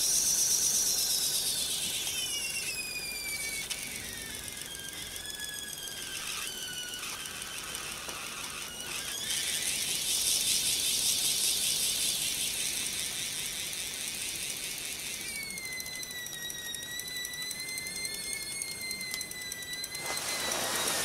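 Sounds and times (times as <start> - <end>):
high wavering squeal: 0.0 - 21.0
high hiss of steam: 20.0 - 21.0.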